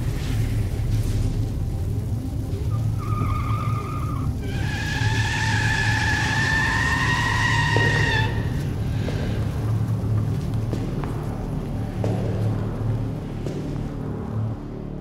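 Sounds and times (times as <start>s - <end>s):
steady low rumble: 0.0s - 3.1s, 3.8s - 15.0s
car tyres squealing: 2.6s - 9.3s.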